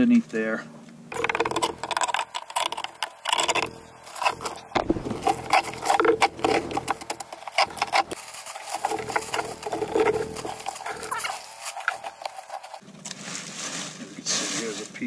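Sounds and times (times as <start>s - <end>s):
plywood chunks crunching and knocking: 1.1s - 12.8s
plastic bag rustling: 1.1s - 14.8s.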